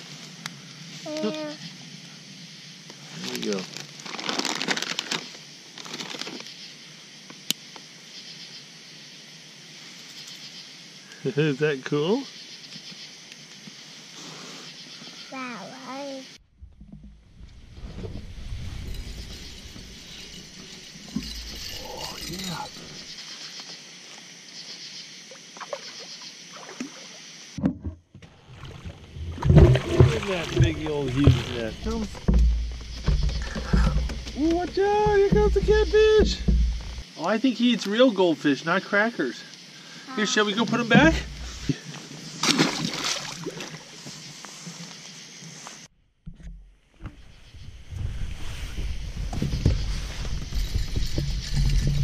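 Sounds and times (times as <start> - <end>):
plastic packaging crinkling: 3.3 - 6.4
steady hiss with faint ticks: 7.2 - 11.2, 11.8 - 14.0, 37.1 - 39.8
fish splashing at surface: 28.4 - 34.2, 42.4 - 43.9.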